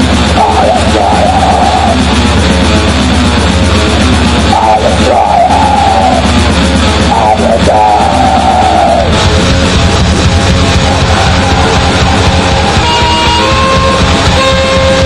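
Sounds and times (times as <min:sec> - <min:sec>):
punk song with distorted guitar: 0:00.0 - 0:15.0
wavering high line: 0:00.0 - 0:15.0.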